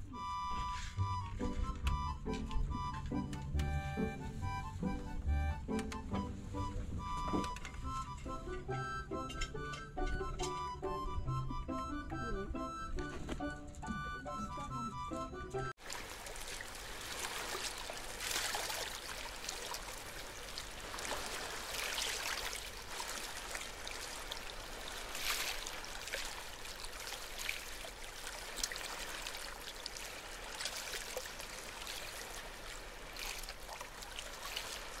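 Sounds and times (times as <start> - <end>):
rushing trickling noise: 15.8 - 35.0.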